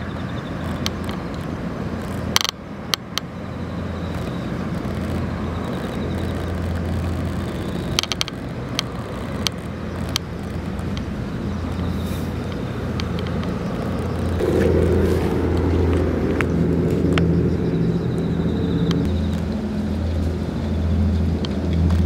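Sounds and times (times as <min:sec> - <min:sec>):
general noise haze: 0:00.0 - 0:22.0
steady low hum: 0:01.5 - 0:22.0
sharp clicks: 0:04.0 - 0:11.1.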